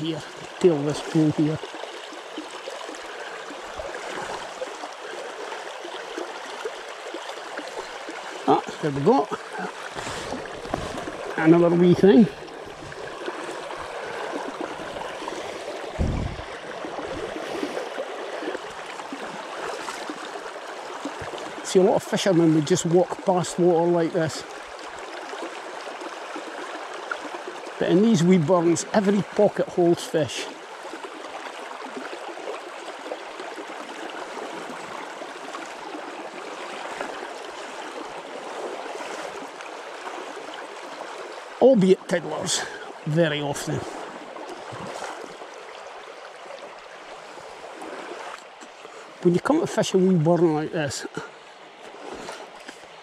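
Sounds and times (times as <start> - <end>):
stream babbling over stones: 0.0 - 53.0
low thump: 16.0 - 16.5.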